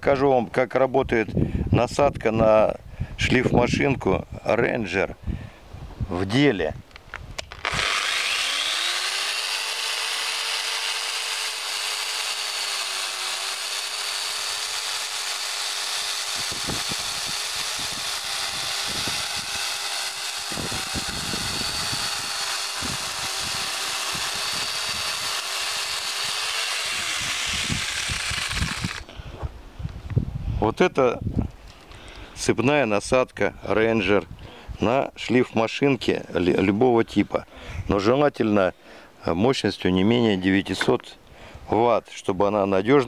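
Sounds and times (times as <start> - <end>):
angle grinder motor whine: 7.5 - 29.1
chain rasping through wood: 7.6 - 29.0.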